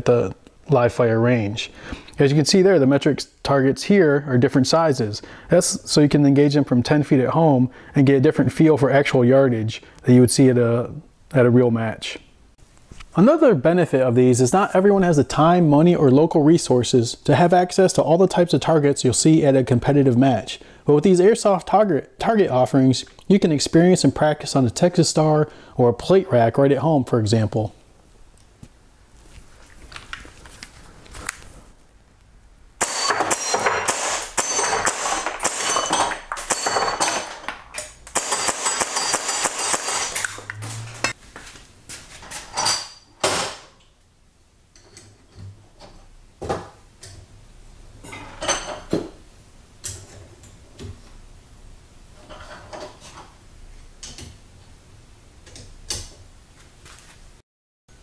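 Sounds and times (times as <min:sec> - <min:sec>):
bbs pinging steel targets: 0:32.8 - 0:37.4, 0:38.0 - 0:40.6.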